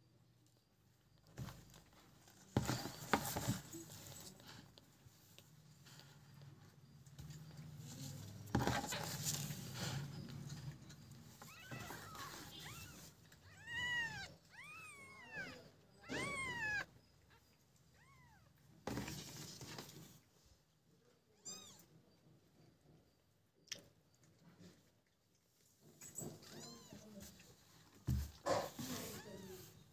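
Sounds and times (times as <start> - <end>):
rustling: 1.2 - 20.6
kittens mewing: 11.4 - 18.5.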